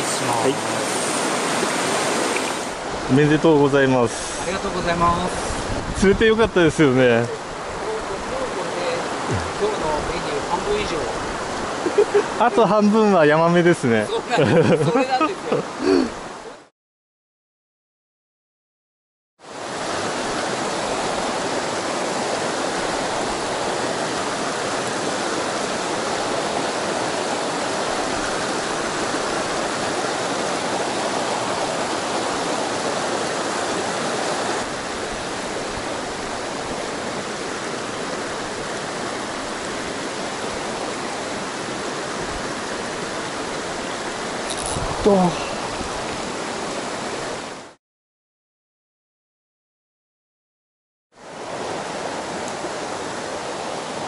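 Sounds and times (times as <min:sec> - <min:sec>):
water rushing over boulders: 0:00.0 - 0:16.7, 0:19.4 - 0:47.8, 0:51.2 - 0:54.0.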